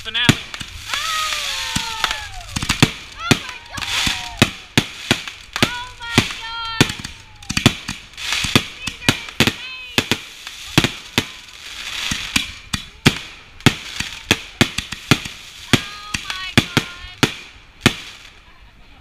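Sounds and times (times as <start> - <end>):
firework shells bursting: 0.0 - 18.4
firework crackling: 0.0 - 19.0.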